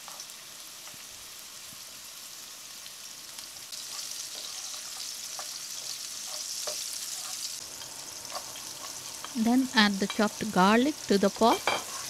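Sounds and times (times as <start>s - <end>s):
sausage sizzling in oil: 0.0s - 12.0s
spatula scraping and tapping pan: 3.9s - 10.4s, 11.4s - 12.0s.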